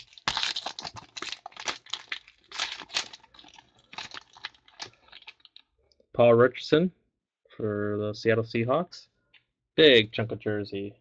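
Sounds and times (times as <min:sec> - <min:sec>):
foil wrapper crinkling: 0:00.0 - 0:05.6.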